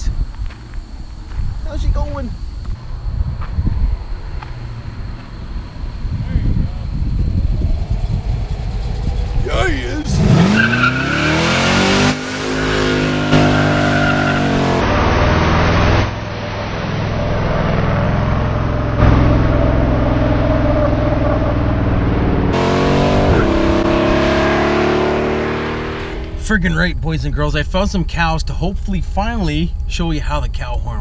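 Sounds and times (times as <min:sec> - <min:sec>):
car engine accelerating hard: 0:04.0 - 0:26.5.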